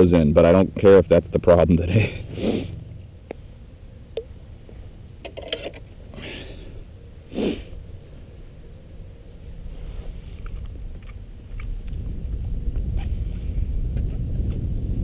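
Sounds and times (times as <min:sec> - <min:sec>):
man sniffing: 0:02.0 - 0:02.8, 0:06.2 - 0:07.8.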